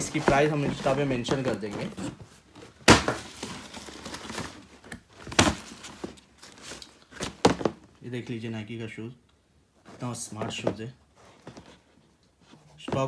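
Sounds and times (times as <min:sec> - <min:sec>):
paper crinkling and rustling: 0:00.0 - 0:07.7.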